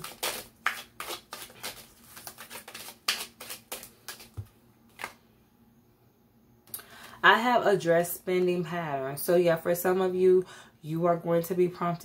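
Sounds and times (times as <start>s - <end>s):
cards being shuffled: 0.0s - 5.2s.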